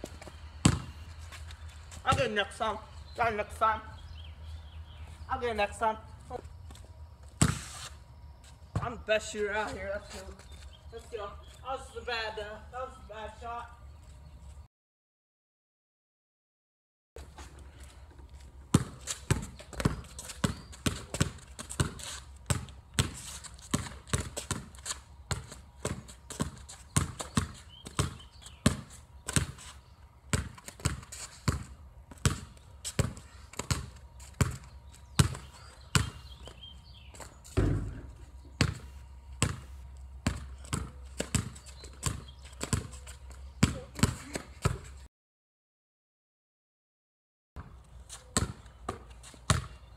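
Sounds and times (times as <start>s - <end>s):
basketball bouncing on concrete: 0.0s - 1.2s, 2.0s - 2.6s, 7.3s - 7.7s, 8.7s - 9.8s, 18.7s - 29.6s, 30.3s - 36.6s, 37.2s - 45.0s, 47.6s - 49.9s.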